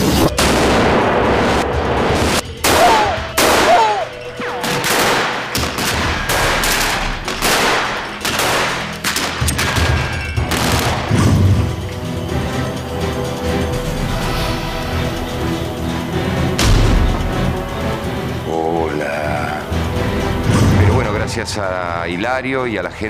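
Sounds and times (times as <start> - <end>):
background music: 0.0 - 23.0
gunshots: 2.2 - 11.6.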